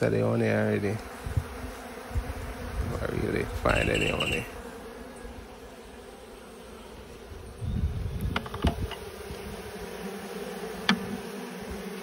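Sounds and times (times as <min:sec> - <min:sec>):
bees buzzing: 0:00.0 - 0:12.0
light knocks: 0:10.8 - 0:11.2.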